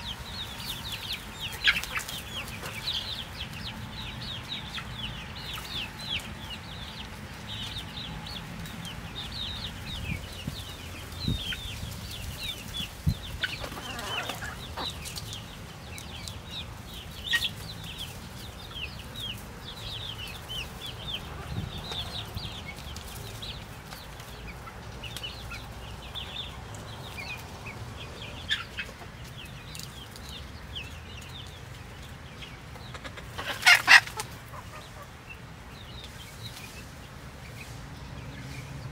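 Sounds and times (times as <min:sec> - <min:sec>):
hens clucking and chirping: 0:00.0 - 0:38.9.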